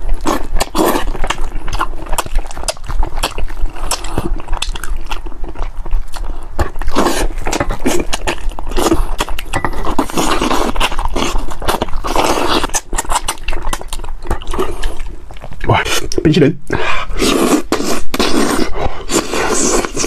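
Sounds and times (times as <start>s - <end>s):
wet sucking and chewing: 0.0s - 20.0s.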